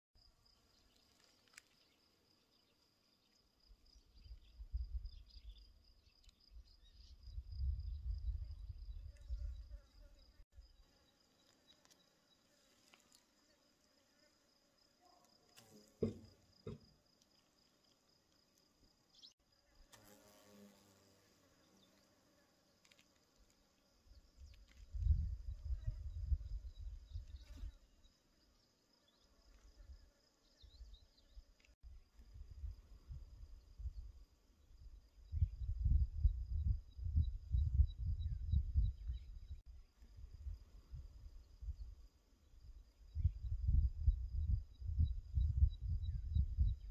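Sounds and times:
gusty wind rumble on microphone: 7.2 - 9.6, 24.8 - 27.4, 34.8 - 39.6, 42.6 - 46.9
sharp knock: 16.0 - 16.9.

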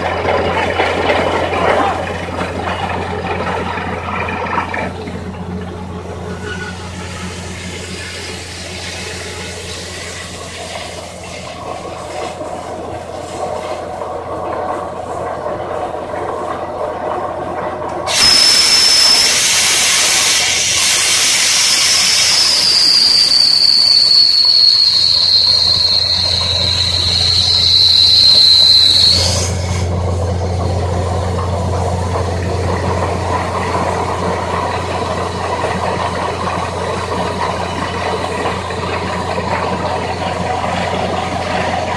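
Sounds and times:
compressed air hissing: 18.1 - 29.9
falling high whistle: 18.1 - 29.9.

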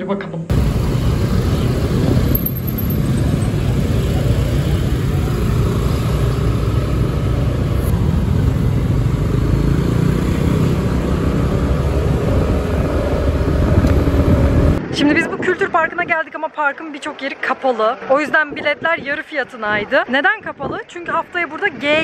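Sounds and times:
scooter engine rumble: 0.5 - 14.8
passing traffic: 0.5 - 22.0
wind on microphone: 0.7 - 2.4, 10.5 - 16.3.

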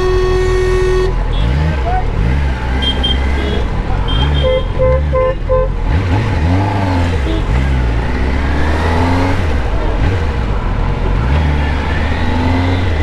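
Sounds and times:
vehicle horn toots: 0.0 - 2.1, 2.7 - 5.8, 7.2 - 7.7
motorcycle engine revving: 0.4 - 13.0.

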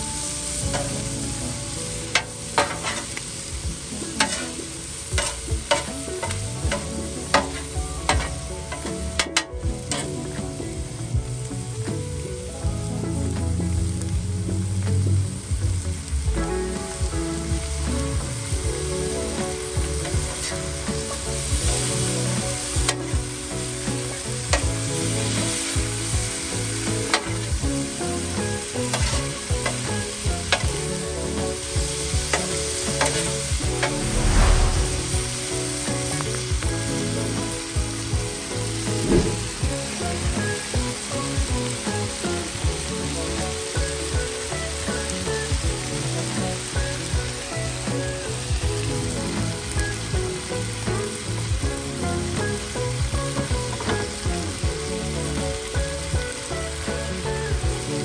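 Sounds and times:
food sizzling on a griddle: 0.0 - 58.0
loud thump: 39.1 - 39.4.

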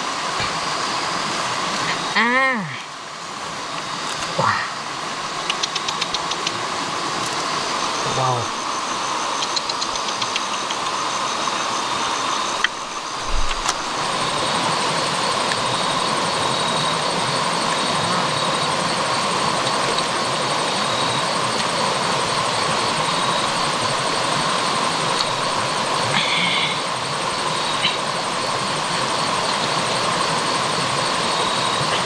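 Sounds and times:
insects trilling: 0.0 - 32.0
stream water rushing over stones: 0.0 - 32.0
low thump: 13.2 - 13.7.

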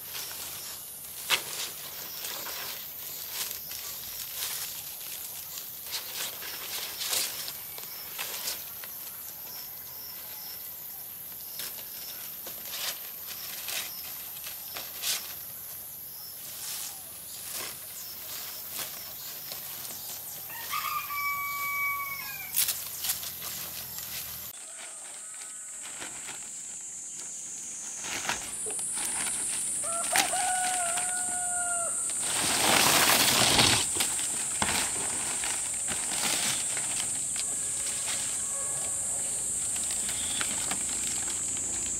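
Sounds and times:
palm leaves rustling: 0.0 - 41.9
rooster crowing: 20.4 - 22.6, 24.6 - 25.9, 29.8 - 32.2
steady high hiss: 25.6 - 41.9.

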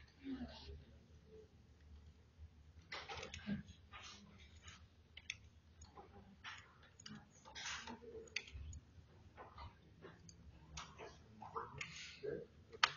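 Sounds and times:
computer mouse clicks: 4.5 - 8.8.

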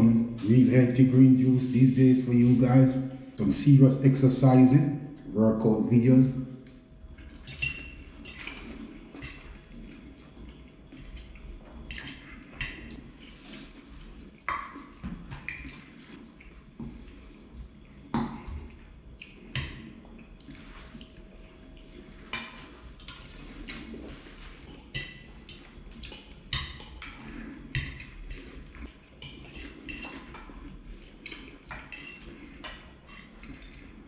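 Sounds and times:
chewing and mouth sounds: 6.6 - 34.0.

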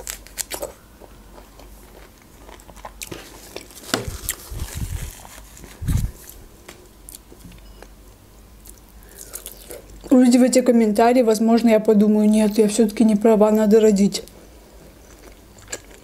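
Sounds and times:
person chewing wetly: 0.0 - 6.4, 8.6 - 10.1, 15.0 - 16.0.

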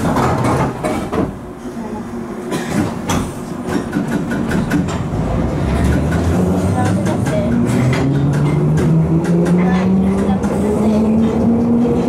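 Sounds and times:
train doors closing with thud: 0.0 - 12.0
train low rumble: 0.0 - 12.0
sharp clicks of train wheels: 2.7 - 11.9.

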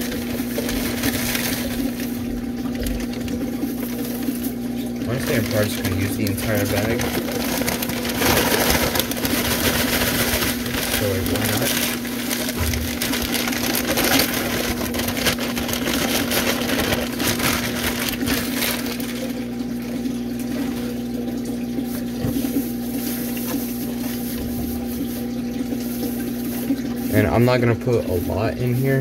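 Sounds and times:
dry hay crackling and rustling: 0.0 - 4.4, 5.1 - 19.5
plastic bag crinkling: 0.0 - 29.0.

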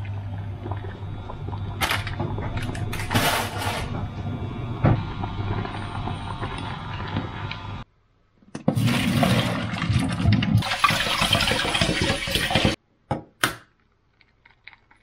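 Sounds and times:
water bubbling at a boil: 0.0 - 2.5
water pouring into metal sieve: 8.8 - 12.8.

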